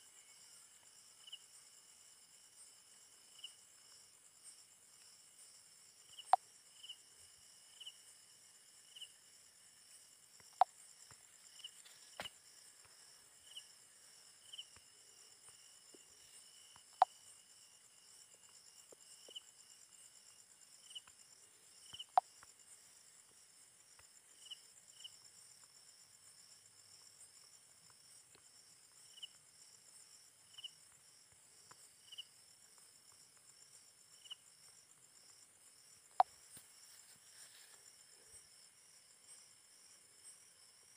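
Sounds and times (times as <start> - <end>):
short insect chirps: 0.0 - 22.7
high-pitched insect chorus: 0.0 - 40.9.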